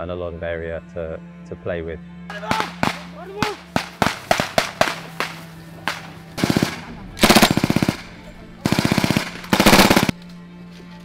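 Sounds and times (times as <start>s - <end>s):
single gunshots: 2.5s - 8.1s, 8.7s - 10.1s
automatic machine gun fire: 3.7s - 10.1s.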